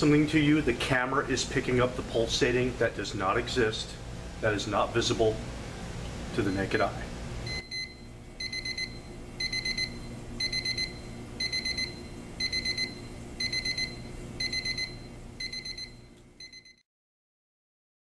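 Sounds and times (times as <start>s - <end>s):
alarm clock beeping: 7.5s - 16.8s.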